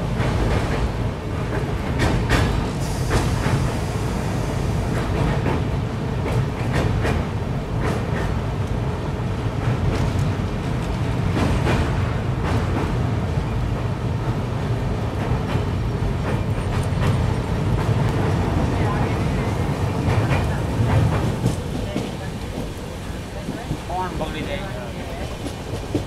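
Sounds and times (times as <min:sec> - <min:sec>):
train rumbling along track: 0:00.0 - 0:26.0.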